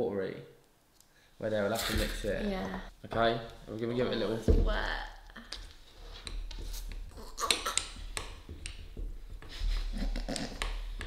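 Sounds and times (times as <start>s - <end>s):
spoon stirring peanut butter: 5.5s - 11.0s.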